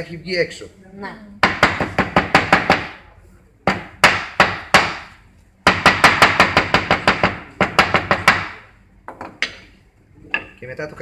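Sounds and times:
wooden mallet pounding on board: 0:01.4 - 0:03.0, 0:03.6 - 0:09.6.

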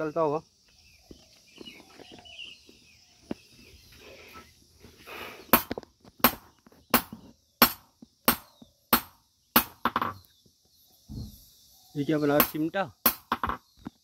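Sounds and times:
hammer striking iron on anvil: 0:07.0 - 0:10.2, 0:12.4 - 0:13.6.

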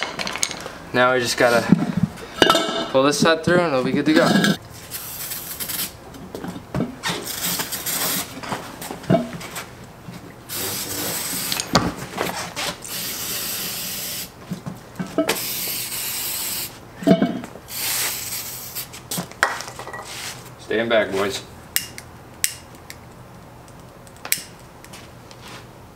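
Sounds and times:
aerosol can hissing: 0:10.5 - 0:11.6, 0:12.9 - 0:14.3, 0:15.3 - 0:16.7, 0:17.7 - 0:18.9.

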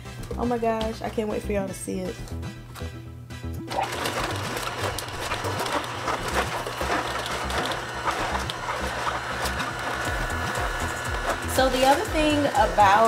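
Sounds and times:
cabbage crackling in juicer: 0:03.6 - 0:13.0
juicer motor humming: 0:03.6 - 0:13.0.

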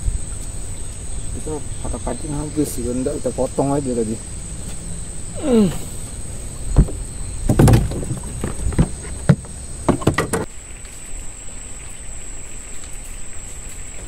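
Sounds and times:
high-pitched insect whine: 0:00.0 - 0:14.0
knocks on wooden boat: 0:06.7 - 0:10.5.

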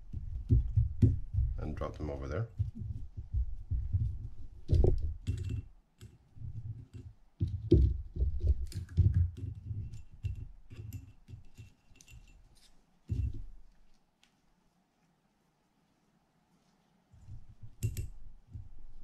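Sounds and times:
hands knocking and rubbing plate: 0:00.0 - 0:05.7, 0:06.4 - 0:11.6.

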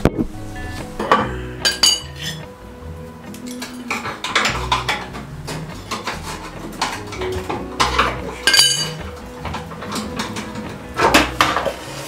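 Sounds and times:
ringing metal clang: 0:00.6 - 0:02.4
steel hand tools clinking: 0:01.0 - 0:02.4, 0:03.4 - 0:11.6.

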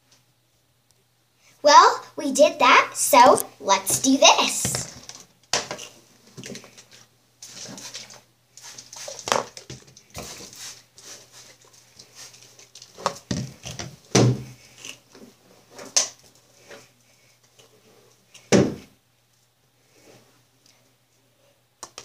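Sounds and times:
hair being brushed: 0:10.2 - 0:12.6
handling bumps and knocks: 0:13.0 - 0:14.6.

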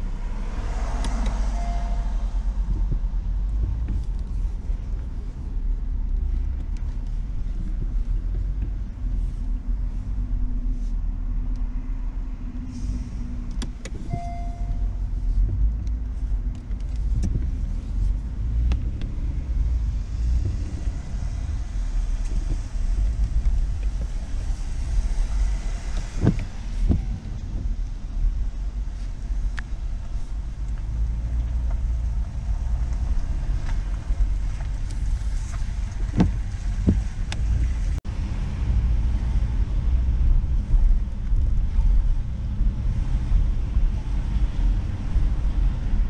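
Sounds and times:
car engine and tyre rumble: 0:00.0 - 0:46.0
beep-like tone: 0:01.5 - 0:02.2, 0:14.1 - 0:15.0.

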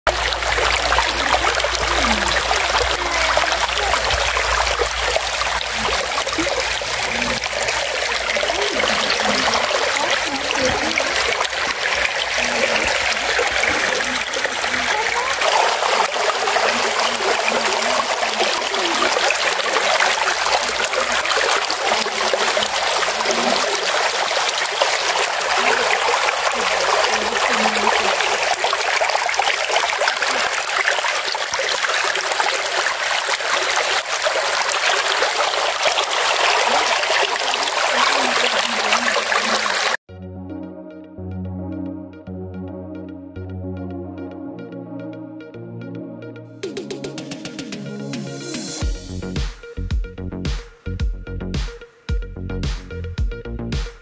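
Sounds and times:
stream rushing over rocks: 0:00.0 - 0:40.0.

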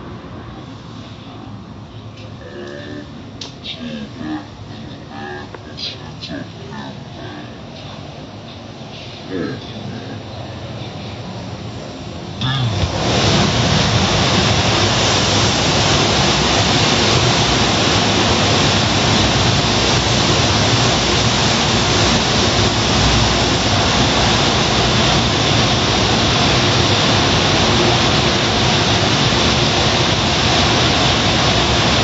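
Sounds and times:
drying blowers rushing air: 0:07.6 - 0:32.0.

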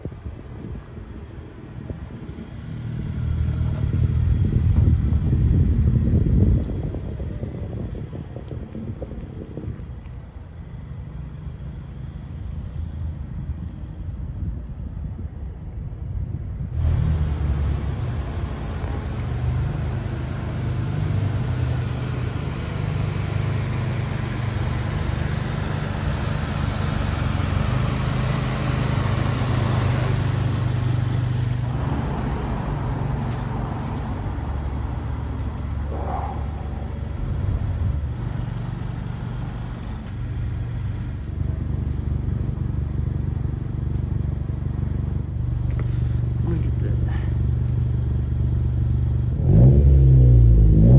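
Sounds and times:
car engine idling: 0:00.1 - 0:14.8, 0:16.8 - 0:49.7.

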